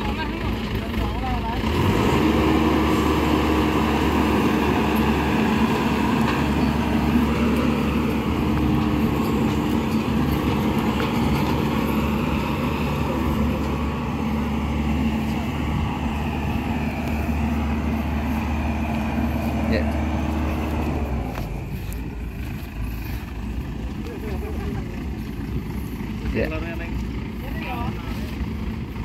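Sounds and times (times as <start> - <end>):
combine harvester diesel engine: 0.0 - 29.0.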